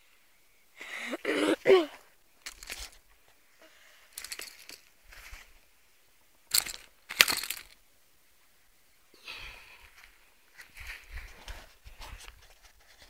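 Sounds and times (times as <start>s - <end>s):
crunching rustles: 2.4s - 3.4s, 4.1s - 5.6s, 6.5s - 7.8s.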